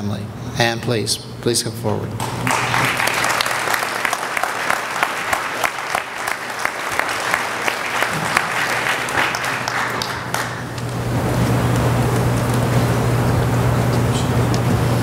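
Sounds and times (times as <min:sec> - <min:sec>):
steady low hum: 0:00.0 - 0:15.0
audience applauding: 0:02.2 - 0:12.7.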